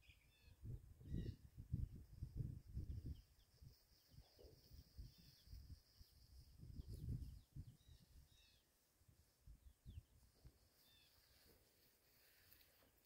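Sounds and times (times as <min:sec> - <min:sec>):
faint bird chirps: 0:00.0 - 0:01.6, 0:02.8 - 0:08.8, 0:09.6 - 0:11.5.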